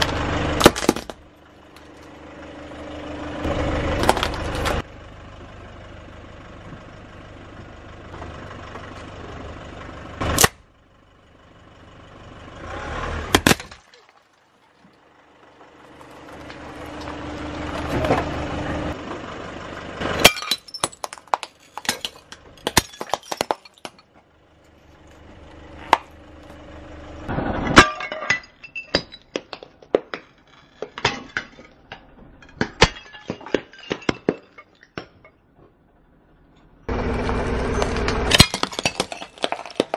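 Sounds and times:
shards clinking and skittering: 20.2s - 24.0s, 27.8s - 29.4s, 30.2s - 35.3s, 38.3s - 39.9s
ceramic bowls cracking: 20.3s - 24.0s, 38.3s - 39.9s.

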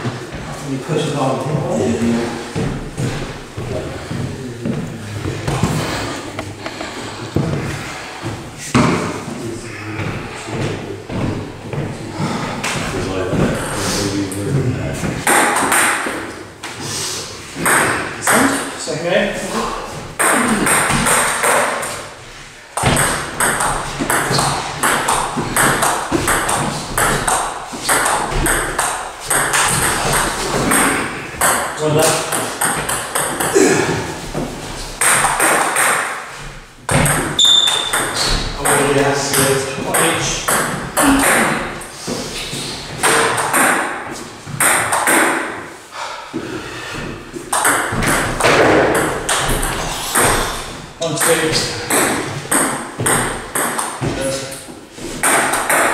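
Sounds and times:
table tennis ball pings: 36.9s - 38.8s.

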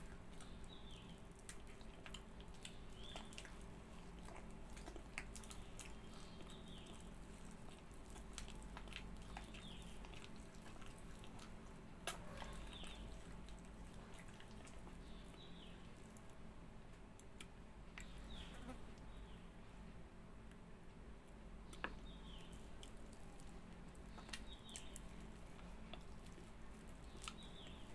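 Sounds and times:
wet sucking and chewing: 0.0s - 16.3s, 22.3s - 27.9s.

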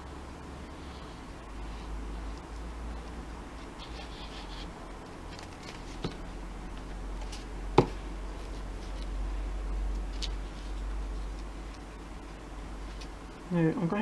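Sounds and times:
low steady hum: 0.0s - 14.0s
faint handling sounds: 0.7s - 13.3s.

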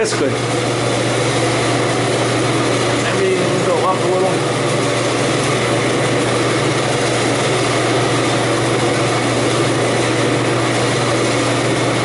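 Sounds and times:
cooler fan running: 0.0s - 12.0s.

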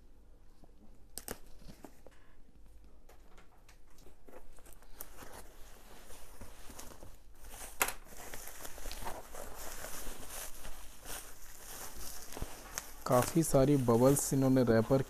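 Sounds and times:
bubble wrap snap: 1.1s - 1.7s
bubble wrap rustling: 4.0s - 15.0s.

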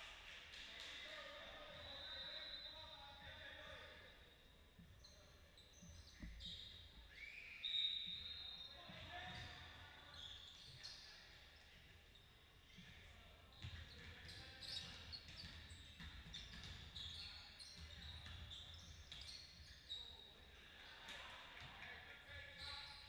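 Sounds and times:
sneaker squeaks: 1.6s - 3.4s, 4.0s - 20.5s, 22.4s - 23.0s
basketball bouncing: 13.6s - 17.0s.

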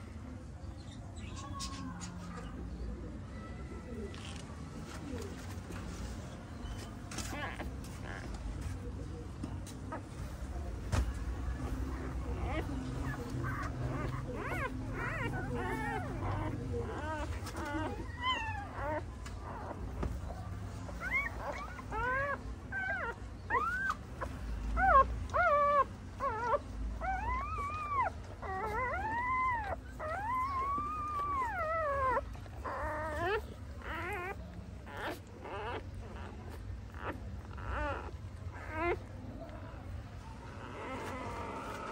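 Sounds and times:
puppies squealing and whining: 6.4s - 8.9s, 9.6s - 41.9s.

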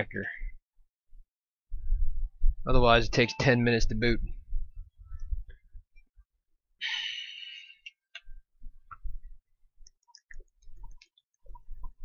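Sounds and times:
person sighing: 6.8s - 7.8s.

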